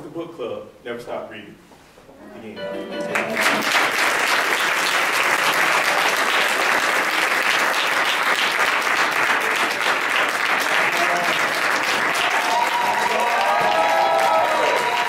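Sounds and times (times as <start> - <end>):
audience applauding: 3.0 - 15.0.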